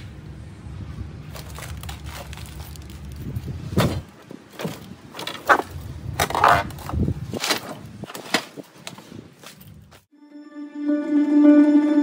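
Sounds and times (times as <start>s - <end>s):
rubbish rustling and crunching: 1.2s - 10.1s.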